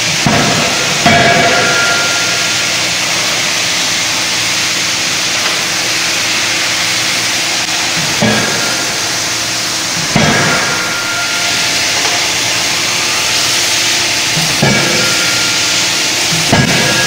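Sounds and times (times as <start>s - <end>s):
forging hammer blows: 0.0s - 3.6s, 7.5s - 17.0s
loud machinery din: 0.0s - 17.0s.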